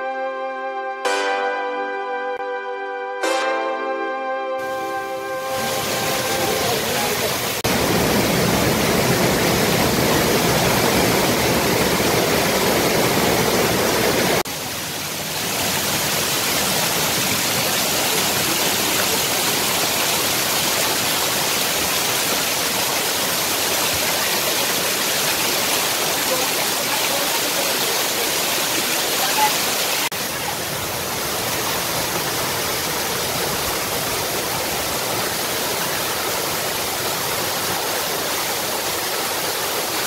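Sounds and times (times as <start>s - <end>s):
floodwater rushing down stone steps: 5.4s - 40.0s.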